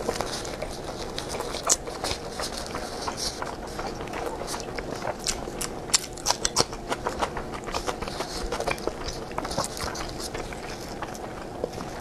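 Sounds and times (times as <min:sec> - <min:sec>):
chewing with wet mouth clicks: 0:00.0 - 0:12.0.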